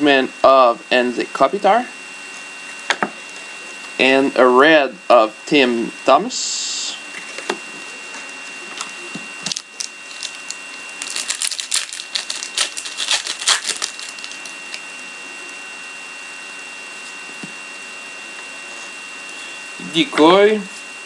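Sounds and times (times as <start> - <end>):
card packaging crackling: 8.8 - 15.4.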